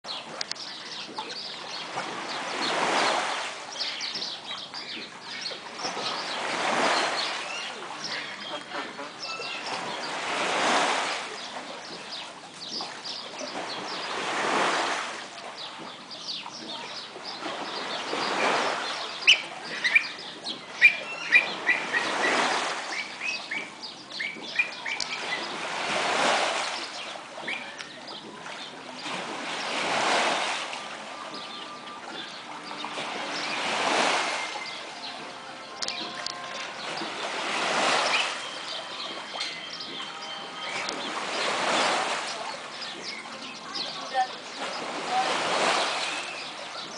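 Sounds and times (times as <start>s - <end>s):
waves surging and breaking: 0.1s - 46.9s
sharp bird calls: 2.3s - 11.0s, 16.5s - 30.4s, 31.2s - 46.9s.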